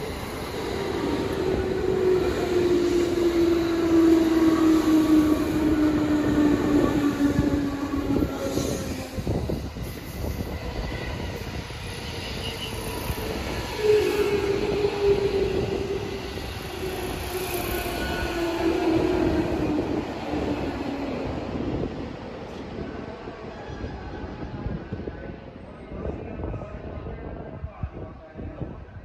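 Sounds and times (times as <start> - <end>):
electric train passing: 0.0 - 25.6.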